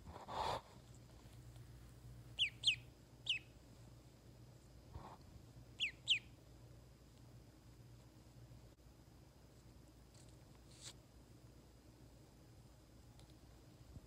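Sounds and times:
soft rustle: 0.0s - 2.2s, 9.5s - 11.1s
duckling peeping: 2.3s - 3.6s, 5.8s - 6.4s.

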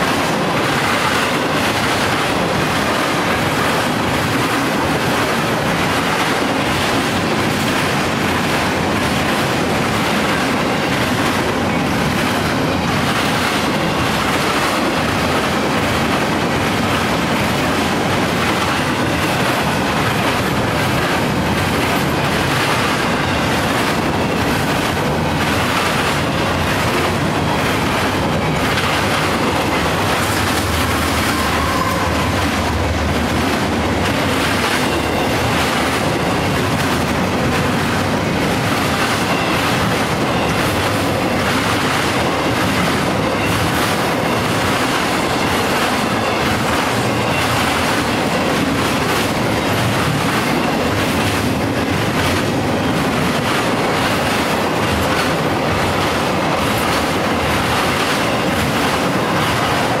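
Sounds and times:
diesel locomotive engine drone: 0.0s - 60.0s
freight train wheels clattering: 0.0s - 60.0s.

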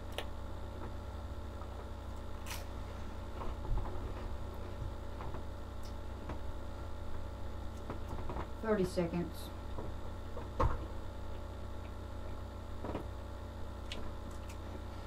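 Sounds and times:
low electrical hum: 0.0s - 15.0s
crackers being chewed: 13.8s - 14.8s.

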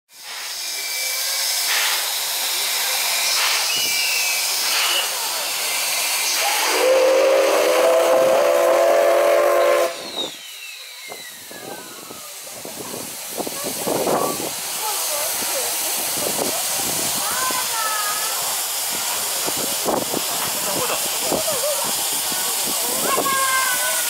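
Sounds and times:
steam venting hiss: 0.1s - 24.0s
steam whistle blast: 6.2s - 12.0s.

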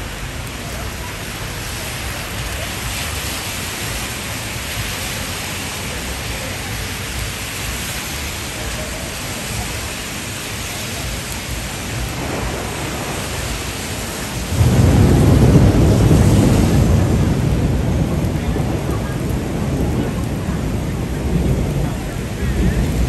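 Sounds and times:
rain falling on street: 0.0s - 23.0s
thunder rumbling: 0.0s - 23.0s.

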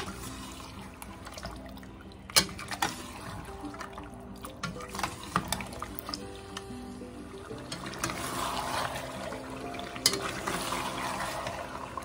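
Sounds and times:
wet sizzling stirring: 0.0s - 12.0s
spoon clinking on metal pot: 10.0s - 10.5s.

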